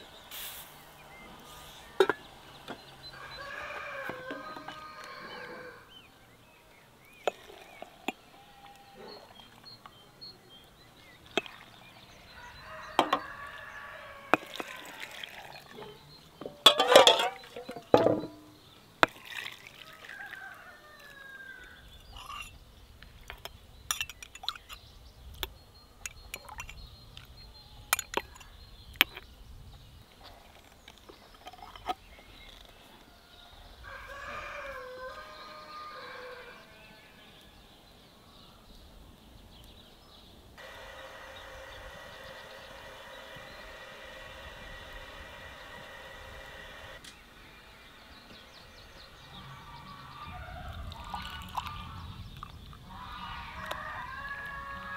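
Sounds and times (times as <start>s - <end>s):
chicken calls: 0.0s - 10.2s, 11.2s - 18.5s, 32.5s - 37.6s, 40.6s - 54.9s
glass jars clinking: 2.0s - 2.3s, 7.2s - 8.8s, 16.4s - 19.4s, 22.0s - 22.6s, 23.2s - 24.8s, 26.0s - 26.9s
rooster crowing: 3.0s - 5.9s, 12.2s - 15.2s, 19.8s - 21.8s, 33.1s - 37.0s, 53.3s - 54.9s.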